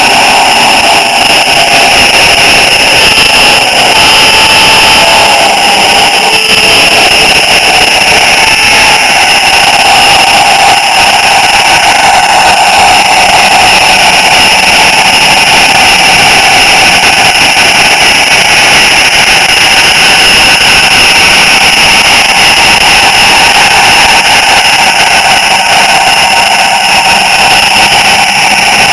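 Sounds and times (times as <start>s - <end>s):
high whines from wheels: 0.0s - 28.9s
model train mechanical whir: 0.0s - 28.9s.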